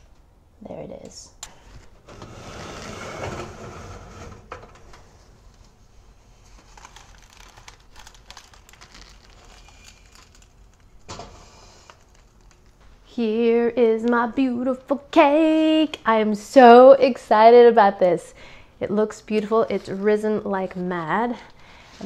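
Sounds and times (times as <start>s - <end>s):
metal pan scraping on rack: 2.1s - 4.8s.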